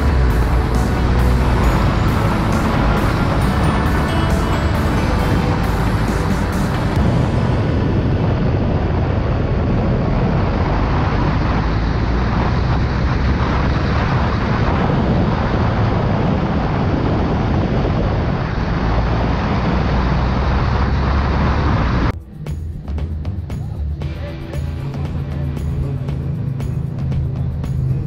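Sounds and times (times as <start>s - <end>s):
motorcycle engine running: 0.0s - 18.4s, 22.0s - 28.0s
wind rushing on microphone: 0.0s - 22.2s.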